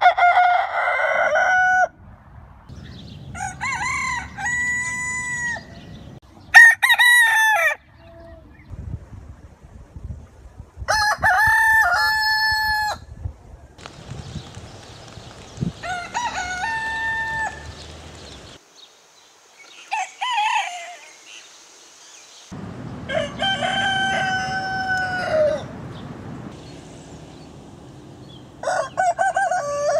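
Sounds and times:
roosters crowing: 0:00.0 - 0:02.0, 0:03.0 - 0:08.1, 0:10.9 - 0:13.1, 0:15.0 - 0:18.6, 0:19.8 - 0:21.2, 0:23.0 - 0:26.0, 0:28.2 - 0:29.9.

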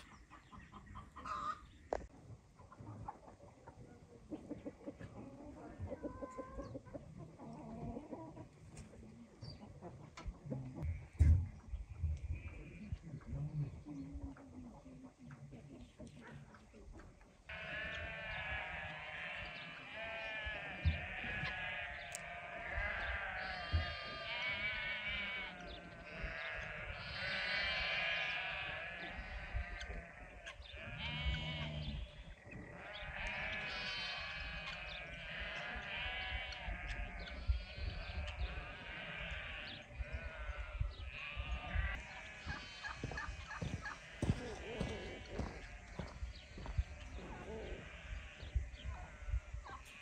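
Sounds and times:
sheep bleating: 0:17.5 - 0:50.0.

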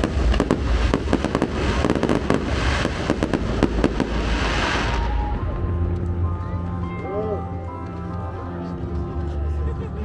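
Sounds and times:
fireworks bangs and crackles: 0:00.0 - 0:06.2.

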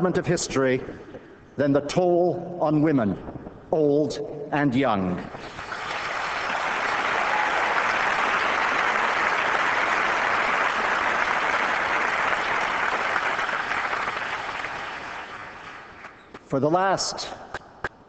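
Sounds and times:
large audience applauding: 0:05.5 - 0:16.2.

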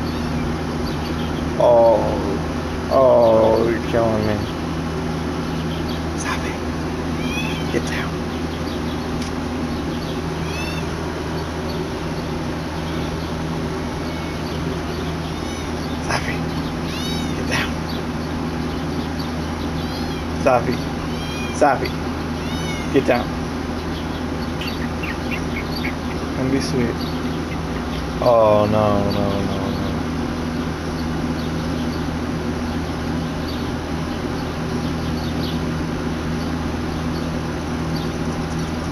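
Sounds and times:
steady low hum: 0:00.0 - 0:38.9
cat meowing: 0:07.2 - 0:07.8, 0:10.4 - 0:11.0, 0:14.0 - 0:14.5, 0:15.4 - 0:15.8, 0:16.8 - 0:17.5, 0:19.8 - 0:20.4, 0:21.1 - 0:21.6, 0:22.4 - 0:23.0
faint high bird chirps: 0:07.2 - 0:35.7.

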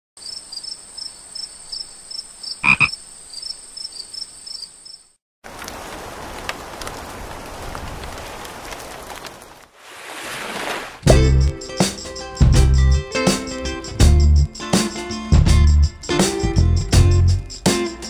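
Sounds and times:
frogs croaking: 0:00.2 - 0:05.2.

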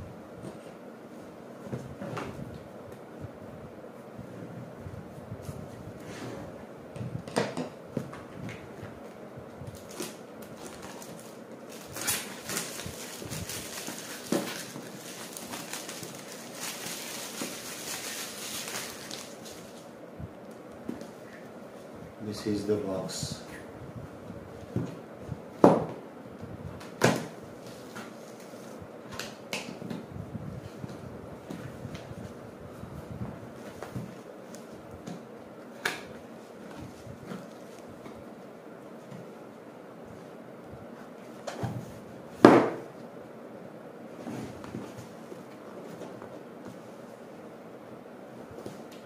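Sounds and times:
plastic wrap crinkling: 0:09.8 - 0:19.8.

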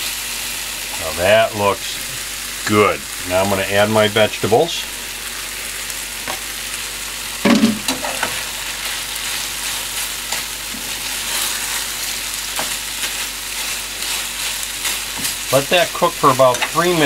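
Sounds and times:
meat and vegetables sizzling: 0:00.0 - 0:17.0
spatula scraping pan: 0:07.5 - 0:17.0.

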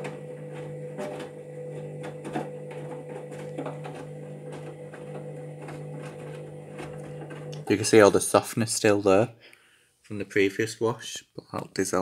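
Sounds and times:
washing machine low hum: 0:00.0 - 0:08.1.

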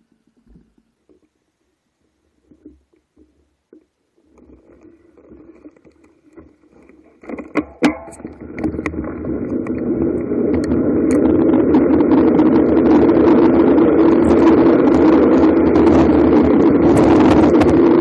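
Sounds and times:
wind on microphone: 0:08.2 - 0:18.0
bicycle tyres on tarmac: 0:08.4 - 0:18.0.

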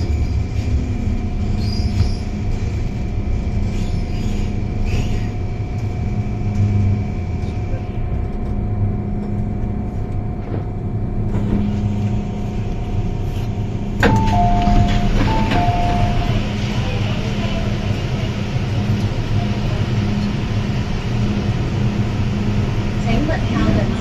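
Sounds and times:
train carriage rumble and hum: 0:00.0 - 0:24.0
onboard announcement: 0:14.0 - 0:20.0.

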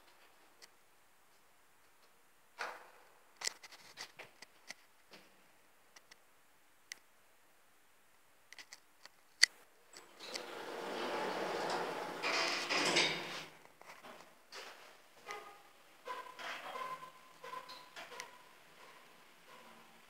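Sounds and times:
elevator doors mechanical noise: 0:09.9 - 0:13.6, 0:16.0 - 0:20.0.

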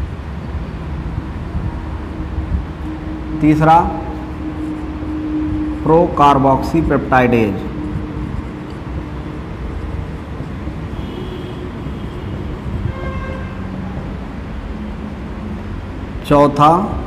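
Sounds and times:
faint high-pitched tones: 0:00.0 - 0:13.4
low background rumble: 0:00.0 - 0:17.0.

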